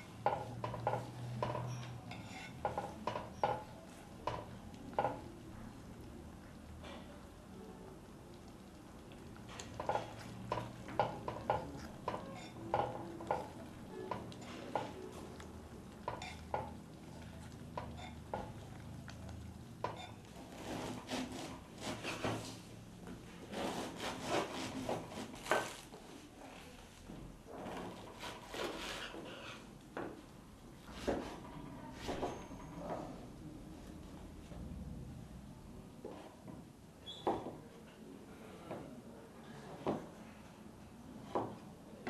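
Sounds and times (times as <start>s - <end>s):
cutlery and dishes clinking: 0.2s - 5.3s, 9.4s - 15.2s, 16.0s - 16.8s, 17.7s - 18.7s, 19.8s - 20.9s.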